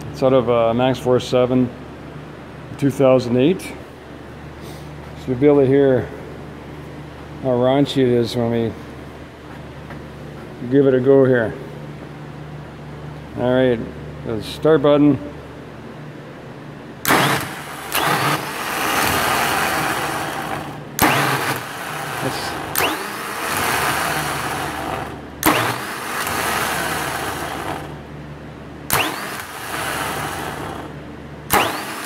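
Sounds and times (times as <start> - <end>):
starter motor whining: 17.0 - 28.0, 28.9 - 32.0.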